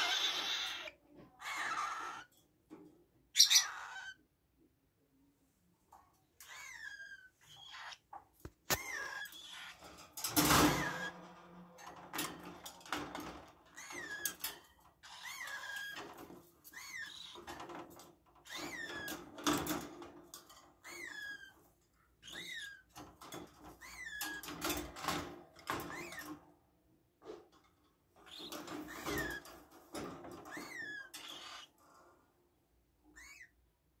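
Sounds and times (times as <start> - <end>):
parrots chirping: 0.0 - 2.3, 3.3 - 4.3, 6.4 - 9.9, 30.5 - 31.8, 33.1 - 33.6
wire cage rattling: 8.8 - 21.6, 22.4 - 26.6.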